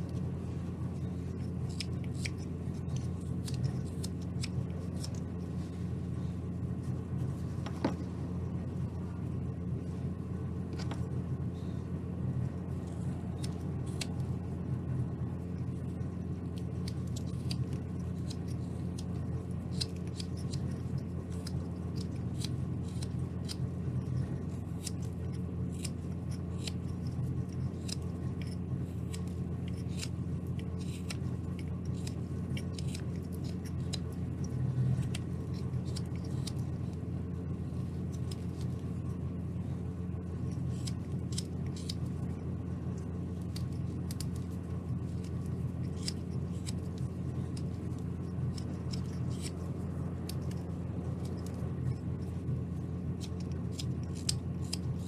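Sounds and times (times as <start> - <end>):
steady low hum: 0.0 - 55.0
knife cutting wood: 1.0 - 5.8, 16.4 - 39.0, 40.4 - 55.0.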